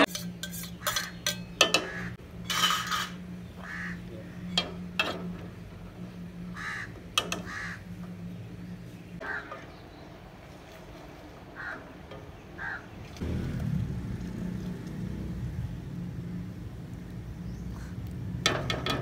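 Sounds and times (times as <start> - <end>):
steel utensils clinking on pot: 0.0 - 3.2
low hum: 0.0 - 19.0
crows cawing: 1.7 - 2.2, 3.6 - 4.5, 6.4 - 8.0, 9.2 - 9.8, 11.5 - 13.0.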